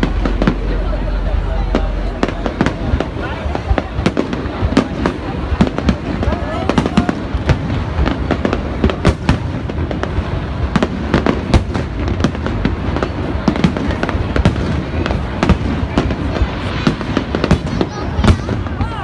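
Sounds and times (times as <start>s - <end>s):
low rumble: 0.0s - 4.8s.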